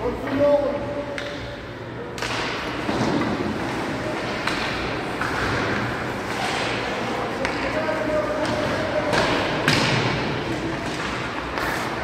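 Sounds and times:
stick and puck knocks: 2.2 - 3.4, 4.2 - 6.8, 8.3 - 11.7.

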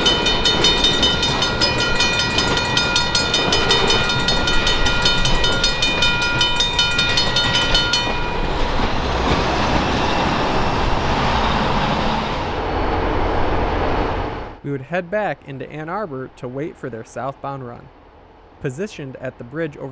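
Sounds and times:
crossing signal bell ringing: 0.0 - 10.7
freight train rumbling past: 0.0 - 19.9.

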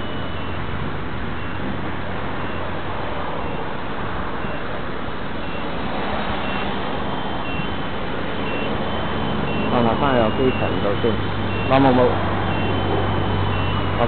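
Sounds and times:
short high beeps: 6.4 - 7.8, 8.4 - 14.0
steady high tone: 6.4 - 14.0.

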